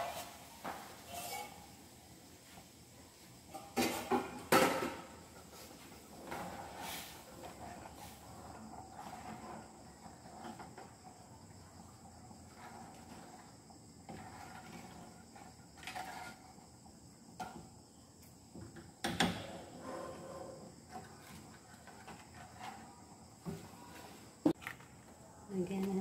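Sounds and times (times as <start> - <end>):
spatula scraping frying pan: 0.0 - 1.9, 5.3 - 16.8.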